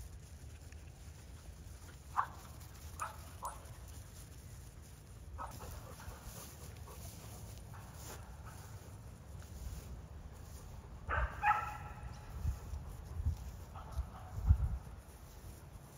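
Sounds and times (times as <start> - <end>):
dog barking: 3.0 - 3.6, 11.1 - 12.1, 13.8 - 14.4.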